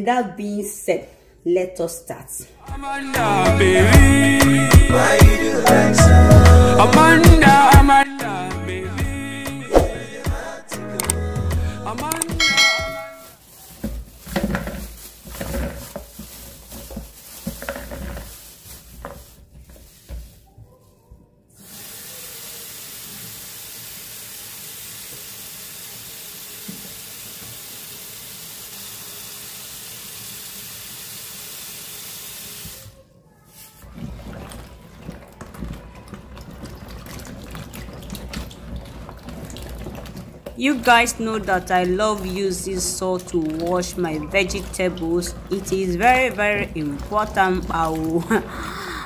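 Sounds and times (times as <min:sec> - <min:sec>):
hands rubbing pods in water: 0:13.1 - 0:20.5, 0:33.6 - 0:49.0
plastic bag rustling: 0:13.2 - 0:20.9, 0:33.4 - 0:48.6.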